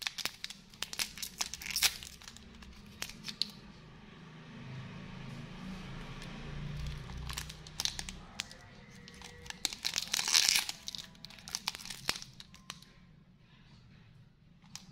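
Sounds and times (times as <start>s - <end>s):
plastic wrapper crinkling and tearing: 0.0s - 3.6s, 6.7s - 12.9s.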